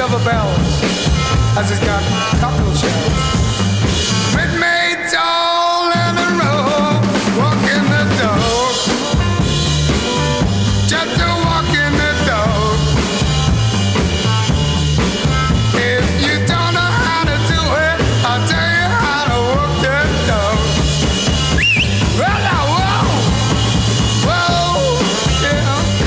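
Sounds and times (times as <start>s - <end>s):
drum kit beat: 0.0s - 4.8s, 5.8s - 26.0s
bass: 0.0s - 26.0s
rock and roll record: 0.0s - 26.0s.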